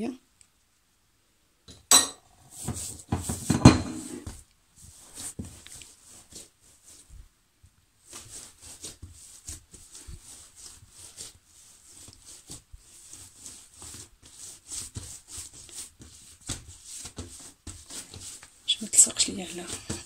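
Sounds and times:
dough squishing and slapping: 2.5s - 7.2s, 8.0s - 20.0s.

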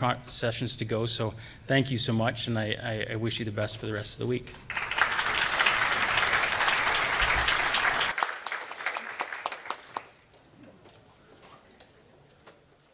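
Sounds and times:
audience applause: 4.7s - 10.2s.

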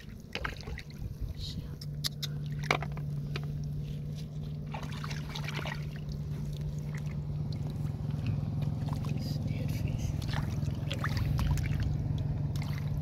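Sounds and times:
hands splashing in muddy water: 0.0s - 1.1s, 2.2s - 9.5s, 10.1s - 13.0s
low hum: 0.0s - 13.0s
water trickling: 4.4s - 13.0s.

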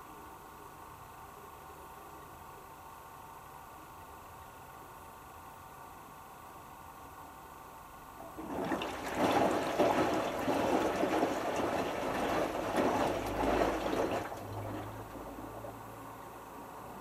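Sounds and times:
wet laundry and water sloshing: 8.2s - 15.9s.

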